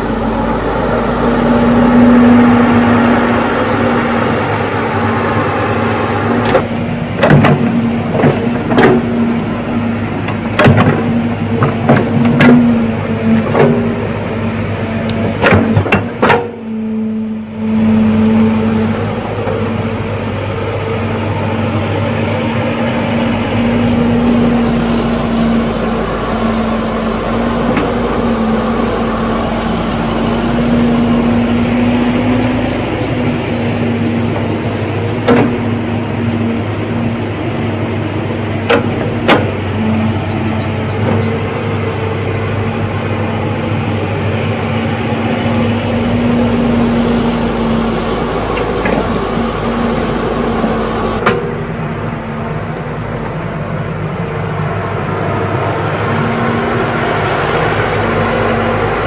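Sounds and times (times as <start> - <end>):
diesel engine humming: 0.0 - 59.0.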